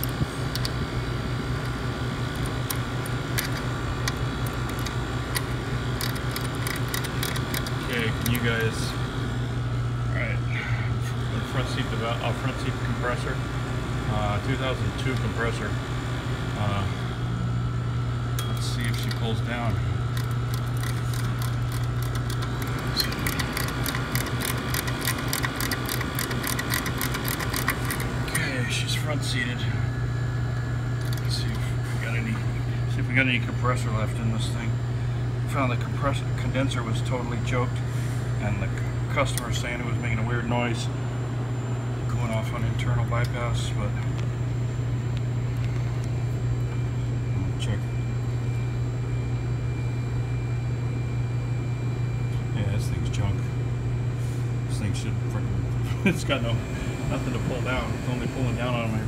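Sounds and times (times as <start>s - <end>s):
condensing unit humming: 0.0s - 59.0s
wrench clicking on valve: 20.2s - 28.1s.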